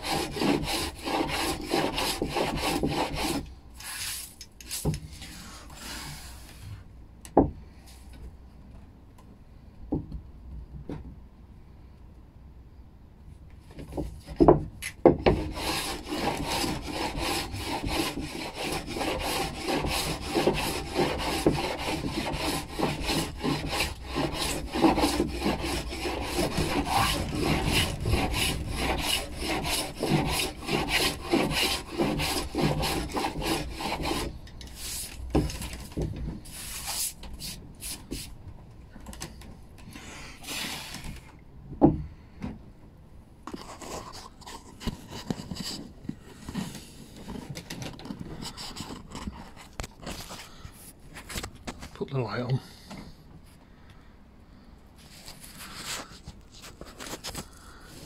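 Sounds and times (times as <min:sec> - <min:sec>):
sanding block rubbing on wood: 0:00.0 - 0:04.3, 0:15.3 - 0:35.1.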